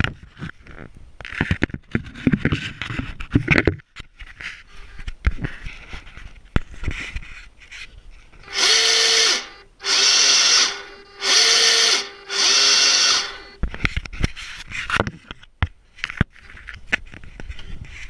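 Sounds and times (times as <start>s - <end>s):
servo motor whine: 8.4s - 13.6s.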